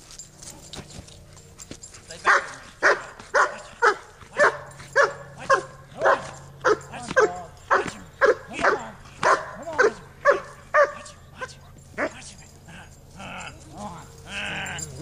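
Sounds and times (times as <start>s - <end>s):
dog barking: 2.2s - 12.2s.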